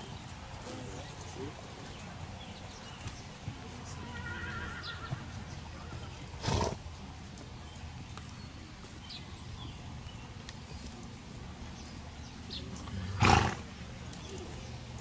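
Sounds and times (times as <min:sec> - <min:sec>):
outdoor background noise: 0:00.0 - 0:15.0
horse whinnying: 0:04.1 - 0:05.2.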